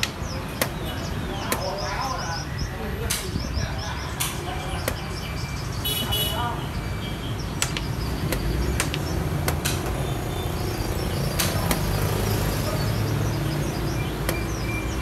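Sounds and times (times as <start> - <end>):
low street rumble: 0.0 - 15.0
game pieces clicking on board: 7.6 - 10.0.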